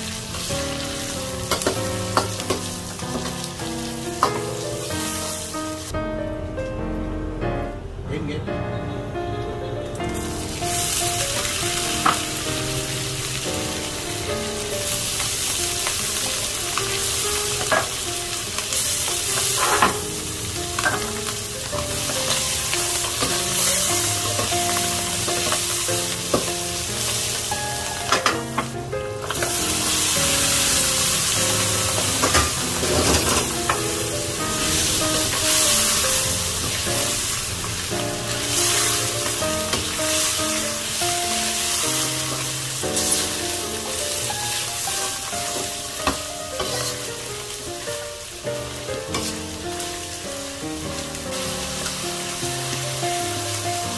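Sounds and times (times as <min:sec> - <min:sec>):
food sizzling in frying pan: 0:00.0 - 0:06.0, 0:10.0 - 0:53.9
soft background melody: 0:00.0 - 0:53.9.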